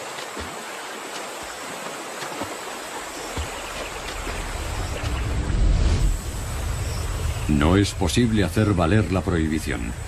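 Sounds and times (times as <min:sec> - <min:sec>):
river water rushing over rocks: 0:00.0 - 0:05.5
low rumble: 0:04.1 - 0:10.0.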